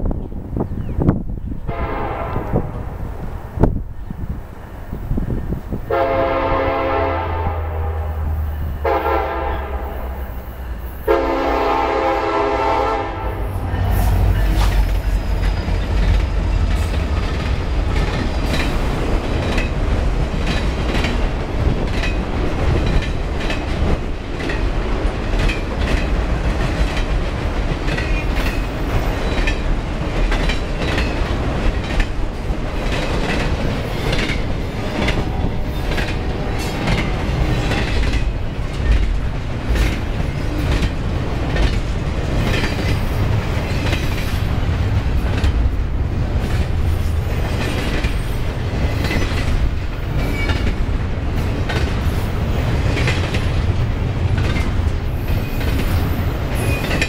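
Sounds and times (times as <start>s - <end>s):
diesel locomotives passing: 0.0s - 57.0s
freight train rumble: 0.0s - 57.0s
locomotive air horn: 1.7s - 2.9s, 5.9s - 10.2s, 11.0s - 14.6s
wheels clacking on rail joints: 10.6s - 57.0s.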